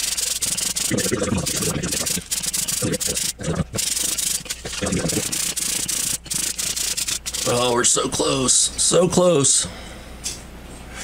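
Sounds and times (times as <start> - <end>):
metal rubbing on sandpaper: 0.0 - 7.9.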